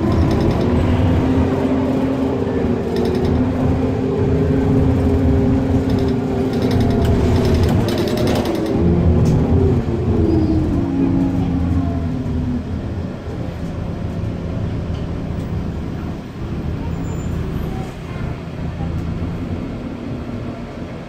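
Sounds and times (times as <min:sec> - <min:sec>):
rattles: 0:00.0 - 0:01.1, 0:05.6 - 0:08.8
bus engine running: 0:00.0 - 0:21.0
road noise: 0:00.0 - 0:21.0.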